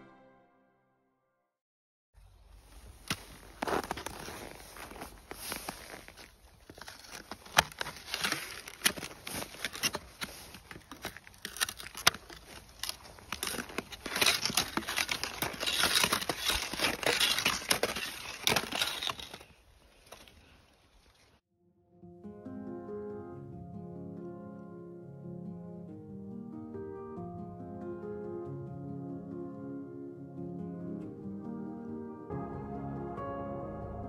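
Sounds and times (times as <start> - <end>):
snow crunching: 2.2 - 21.4.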